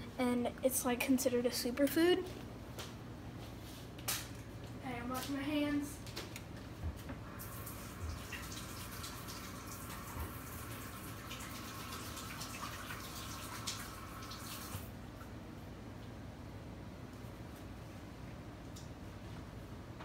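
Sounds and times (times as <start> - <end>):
kitchen tap running: 7.3 - 14.9.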